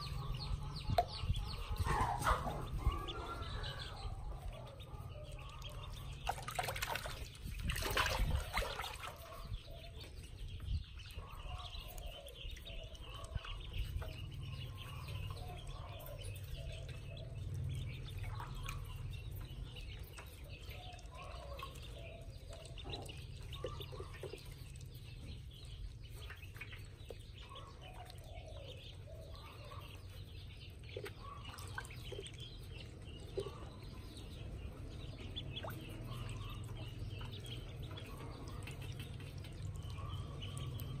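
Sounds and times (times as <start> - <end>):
ducklings peeping: 0.0 - 41.0
water splashing in metal basin: 6.0 - 9.3.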